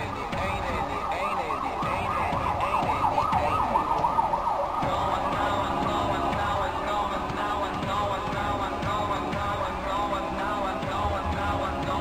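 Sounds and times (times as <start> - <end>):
siren-like warbling tone: 0.0 - 6.2.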